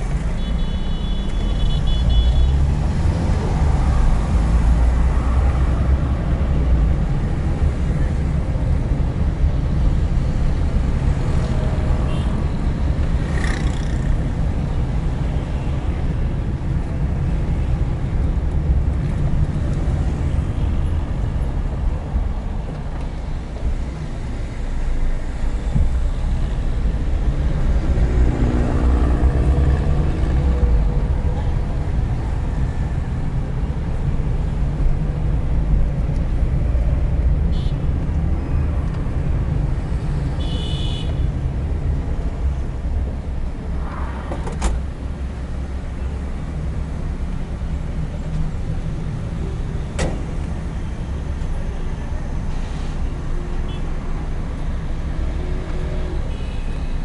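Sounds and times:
traffic engines rumbling: 0.0s - 57.0s
car horn toot: 0.4s - 2.5s, 40.4s - 41.2s.

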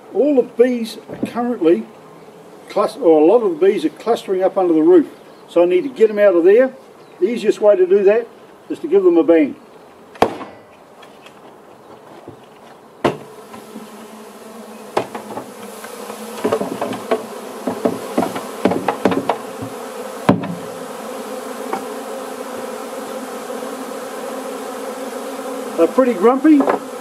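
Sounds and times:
agitated bees humming: 0.0s - 10.2s, 10.8s - 27.0s
knocks on plastic bucket: 13.0s - 13.7s, 15.0s - 15.5s, 16.4s - 20.7s.

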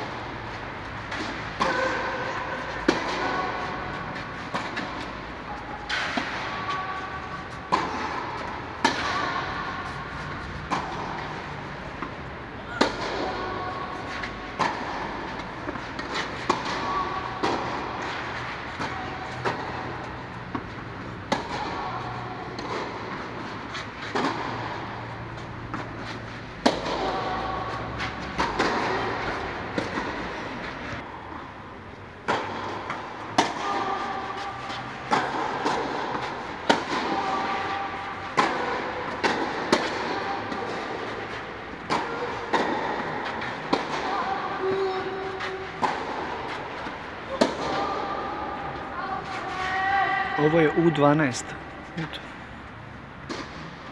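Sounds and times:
tennis balls struck and bouncing: 0.0s - 50.0s, 51.5s - 53.9s.

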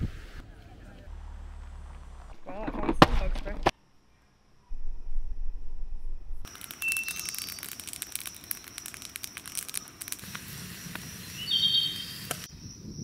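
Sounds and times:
crackling clicks: 6.4s - 11.1s, 12.2s - 12.5s
bird chirping: 6.7s - 9.1s, 11.1s - 13.0s.

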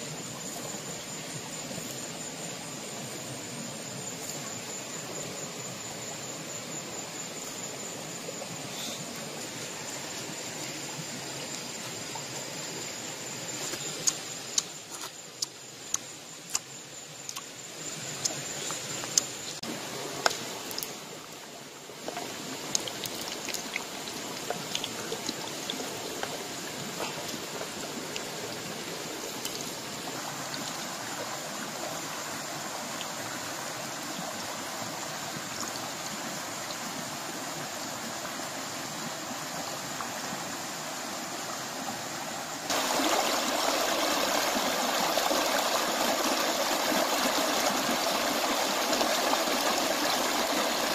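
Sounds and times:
river water running over rocks: 0.0s - 50.9s.

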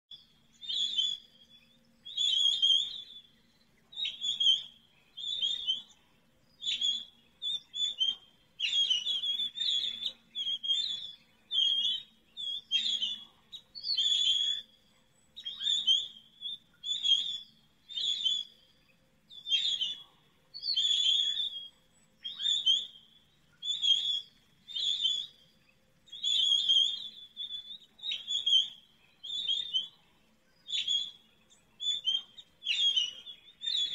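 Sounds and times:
bird whistled calls: 0.1s - 33.9s.

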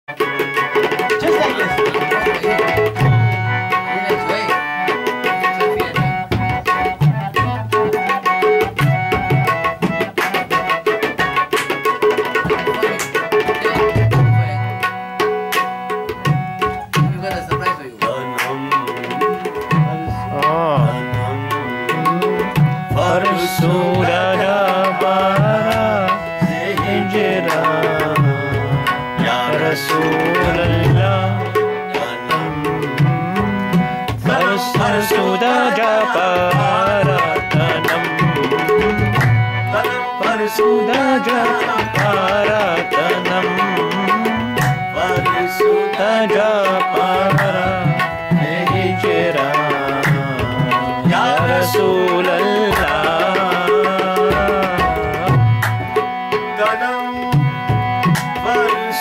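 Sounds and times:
tabla rhythm: 0.0s - 59.0s
man singing: 0.1s - 10.7s, 16.9s - 59.0s
harmonium chords: 0.1s - 59.0s.

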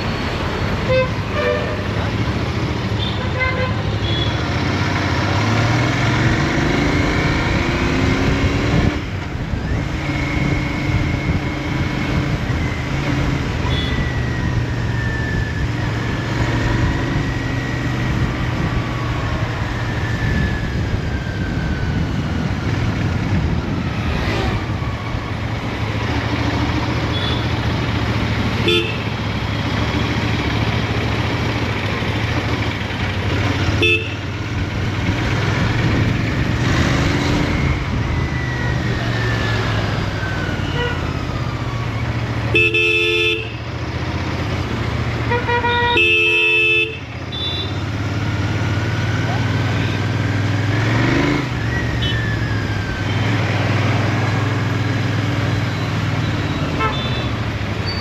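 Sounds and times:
vehicle horns tooting: 0.8s - 2.0s, 3.0s - 4.4s, 27.1s - 27.6s, 28.6s - 29.1s, 33.7s - 34.3s, 42.4s - 43.6s, 45.2s - 47.8s, 56.3s - 58.0s
motorcycle engine revving: 1.6s - 42.5s, 47.0s - 58.0s.

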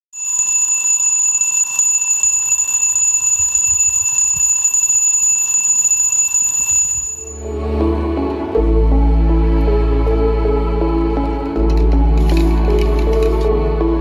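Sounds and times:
alarm clock ringing: 0.1s - 7.6s.

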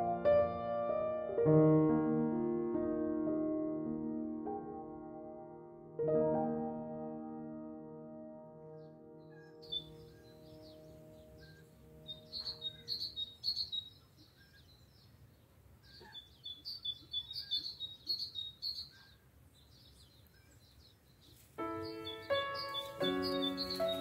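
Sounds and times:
soft background music: 2.6s - 13.2s, 21.6s - 24.0s
songbirds twittering: 8.8s - 24.0s.

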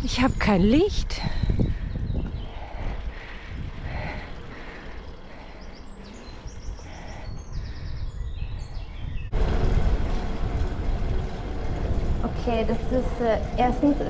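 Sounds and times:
bird singing: 0.0s - 3.2s, 4.2s - 9.4s
bicycle riding rumble: 0.0s - 14.0s
wind on microphone: 0.0s - 14.0s
loud steady rushing noise: 9.3s - 14.0s.

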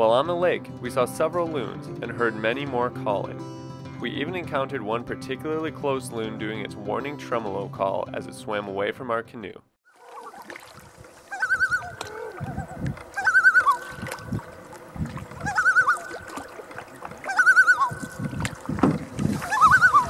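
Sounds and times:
loon tremolo call: 11.2s - 14.8s, 15.4s - 16.6s, 17.2s - 18.2s, 19.4s - 20.0s
low thuds: 18.0s - 19.4s.

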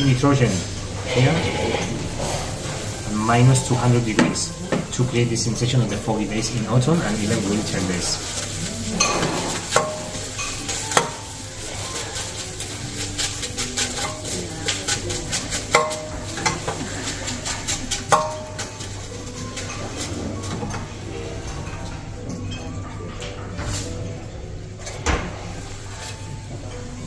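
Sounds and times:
liquid nitrogen hissing: 0.0s - 22.8s, 23.6s - 27.0s
stick clicking and scraping in bowl: 6.5s - 20.2s.

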